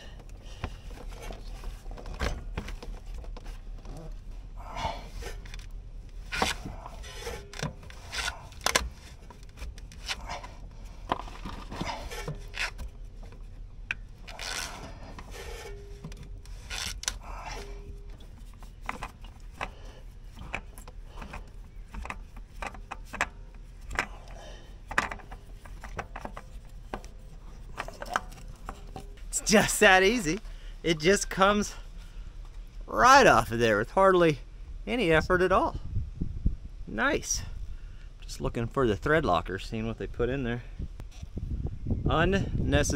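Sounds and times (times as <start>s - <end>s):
rubbing and scraping on oil filter: 0.0s - 32.9s
sharp clicks and knocks: 5.4s - 29.3s.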